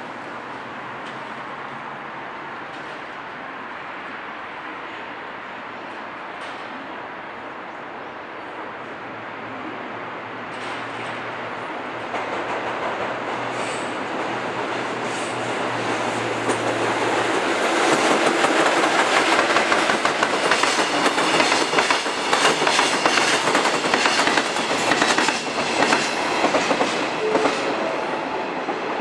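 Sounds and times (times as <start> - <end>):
electric locomotive humming: 8.4 - 29.0
train wheels clacking over rail joints: 12.0 - 27.8.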